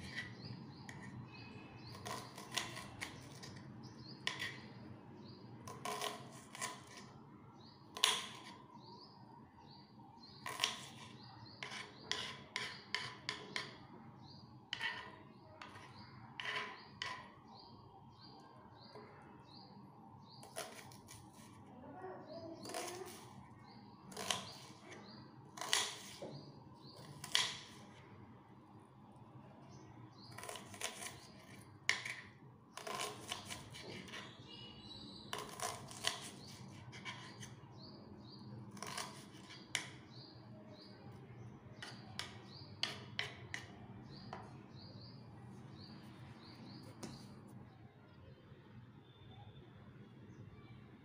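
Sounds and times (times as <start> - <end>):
knife chopping onion on wood: 1.8 - 4.7, 5.6 - 7.1, 7.9 - 8.6, 10.4 - 13.9, 14.7 - 17.3, 20.4 - 21.6, 22.6 - 23.4, 24.0 - 28.0, 30.3 - 34.5, 35.2 - 37.8, 38.6 - 40.4, 41.8 - 44.7.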